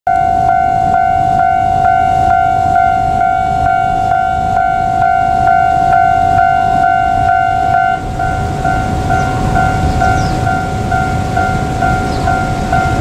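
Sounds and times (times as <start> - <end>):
level crossing warning bell: 0.1 - 13.0.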